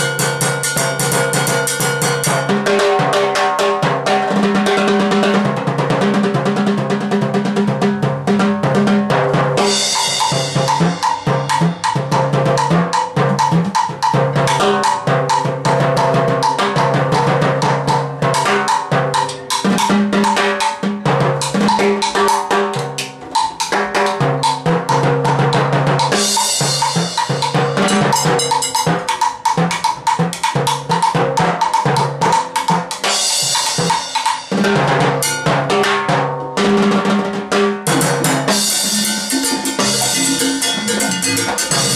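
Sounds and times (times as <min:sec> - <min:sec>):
cowbell struck: 0:00.0 - 0:02.5, 0:26.1 - 0:29.2, 0:37.9 - 0:41.9
timbales played fast: 0:26.1 - 0:31.6, 0:37.9 - 0:41.9
cymbal crash ringing: 0:37.9 - 0:41.9.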